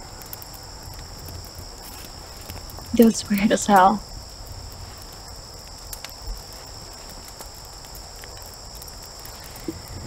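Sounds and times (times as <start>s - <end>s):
crickets chirping: 0.0s - 10.0s.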